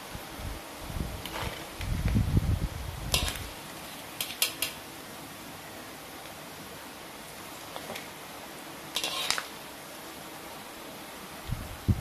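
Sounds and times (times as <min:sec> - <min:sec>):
oil sizzling: 0:00.0 - 0:02.2, 0:02.9 - 0:11.4
strainer scraping metal wok: 0:01.2 - 0:01.8, 0:03.1 - 0:04.8, 0:08.9 - 0:09.6.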